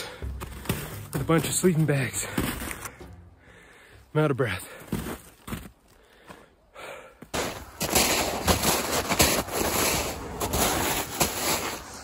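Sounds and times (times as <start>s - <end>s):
crunching and scraping of snow: 0.0s - 3.0s, 4.5s - 6.3s, 7.4s - 12.0s
heavy breathing: 2.2s - 5.0s, 5.9s - 7.3s
sharp cracks: 7.4s - 11.8s.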